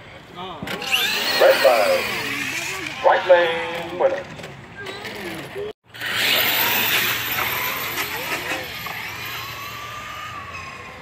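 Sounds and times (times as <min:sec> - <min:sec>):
rc trucks motor whine: 0:00.7 - 0:03.0, 0:05.0 - 0:11.0.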